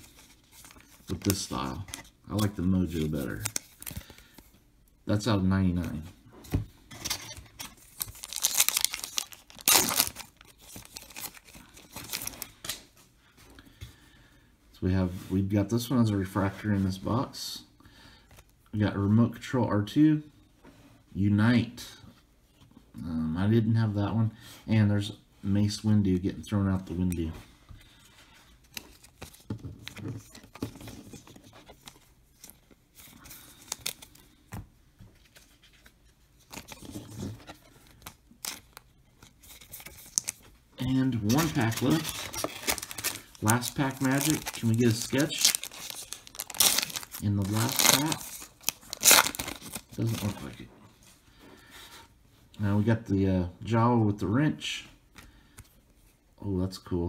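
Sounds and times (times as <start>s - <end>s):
foil wrapper tearing and crinkling: 7.9s - 12.8s, 41.2s - 50.4s.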